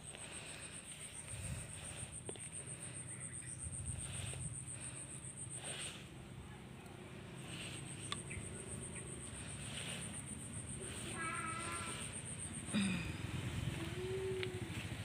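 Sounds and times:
insect trilling: 7.2 - 14.8.

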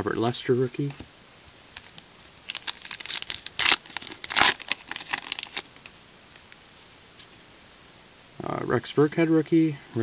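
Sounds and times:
card pack wrapper crinkling: 1.7 - 5.9.

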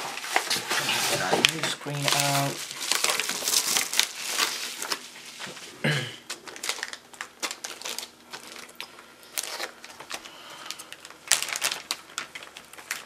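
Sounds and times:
plastic bag crinkling: 0.0 - 5.6, 6.3 - 13.0.

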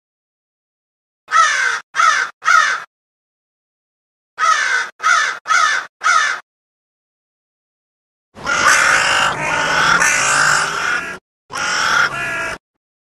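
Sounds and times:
crow cawing: 1.3 - 2.9, 4.4 - 6.4, 8.4 - 12.6.

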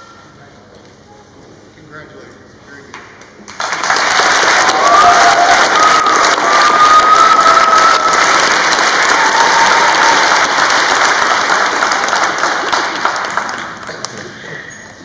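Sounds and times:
audience applauding: 3.4 - 14.4
long high whistle: 5.3 - 8.4, 9.0 - 10.4.

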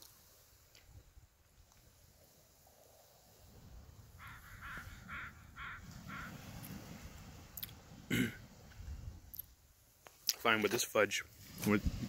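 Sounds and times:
crow cawing: 4.2 - 6.5.

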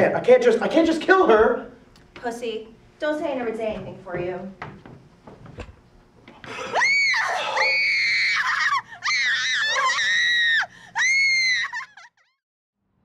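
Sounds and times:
woman screaming in terror: 6.6 - 12.3
woman breathing: 10.6 - 11.0.

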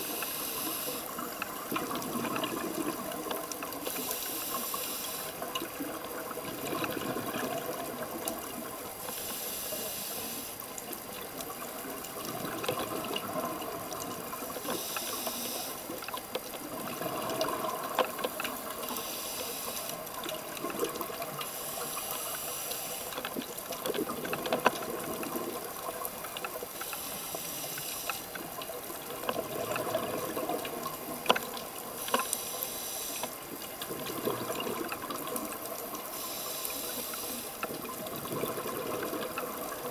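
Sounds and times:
regulator inhalation hiss: 0.0 - 1.2, 3.8 - 5.4, 9.0 - 10.6, 14.7 - 16.0, 18.8 - 20.0, 21.5 - 23.2, 26.8 - 28.4, 32.0 - 33.4, 36.1 - 37.6
small clicks: 17.3 - 36.0.

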